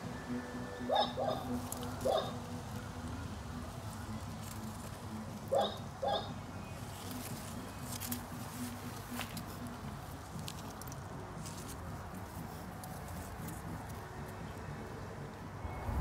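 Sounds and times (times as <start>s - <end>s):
outdoor background noise: 0.0s - 16.0s
animal calling: 0.8s - 2.5s, 5.5s - 6.4s.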